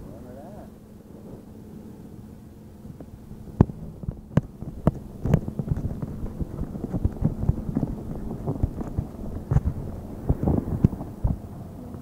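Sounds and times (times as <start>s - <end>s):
car wash machinery hum: 0.0s - 12.0s
clatter of sharp knocks: 3.6s - 11.5s.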